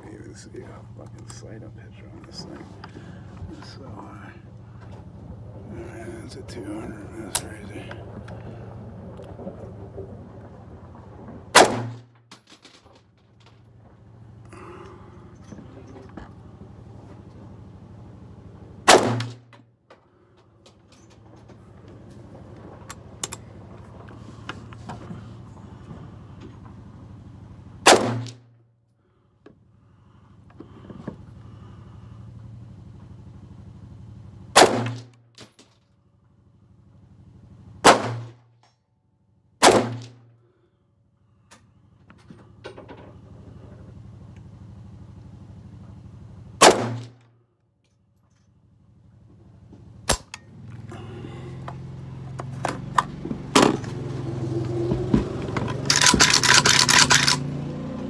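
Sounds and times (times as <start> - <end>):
rifle shots: 11.5 - 12.2, 18.8 - 19.5, 27.8 - 28.4, 34.5 - 35.1, 37.8 - 38.4, 39.6 - 40.2, 46.6 - 47.2
rifle action metallic rattle: 55.6 - 57.5.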